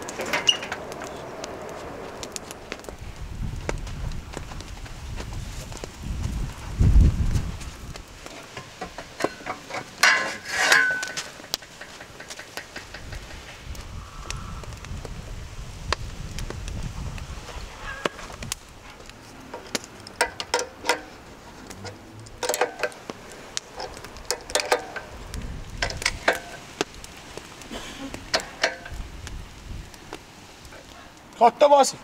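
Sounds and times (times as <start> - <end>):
low rumble: 0.0 - 8.0, 13.2 - 17.8.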